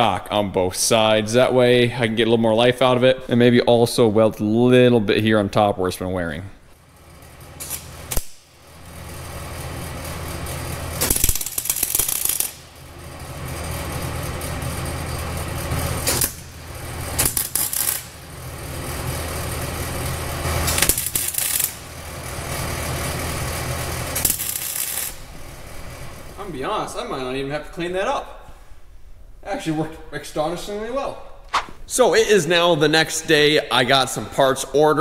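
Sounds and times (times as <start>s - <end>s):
constant hum: 0.0s - 35.0s
welding crackling buzz: 6.7s - 27.3s.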